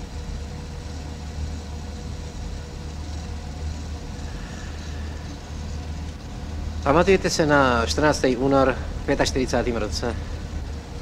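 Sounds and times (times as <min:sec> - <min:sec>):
faint steady whine: 0:00.0 - 0:11.0.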